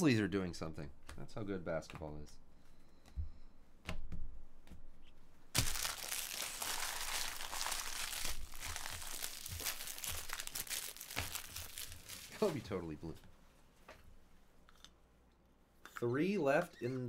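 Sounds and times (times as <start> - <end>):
plastic packaging crinkling and tearing: 5.6 - 12.6.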